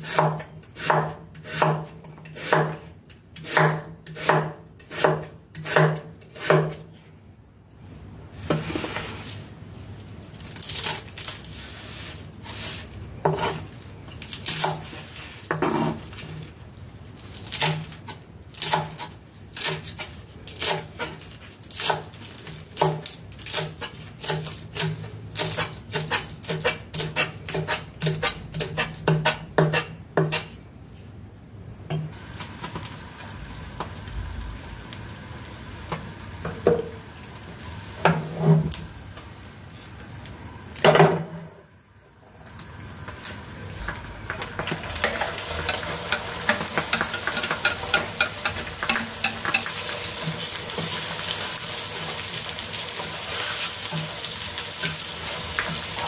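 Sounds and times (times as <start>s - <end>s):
knife chopping on wooden board: 0.1s - 2.8s, 3.4s - 6.8s
faint steady hiss: 30.7s - 56.0s.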